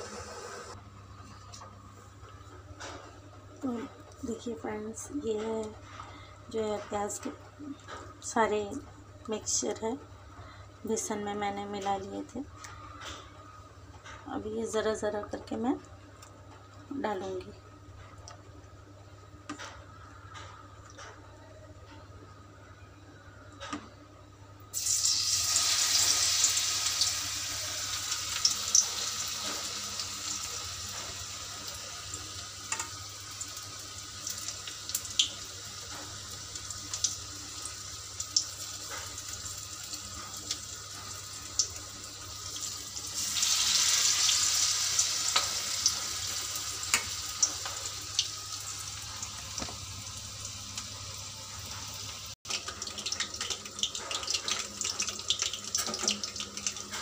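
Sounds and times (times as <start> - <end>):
batter sizzling in hot oil: 24.7 - 57.0.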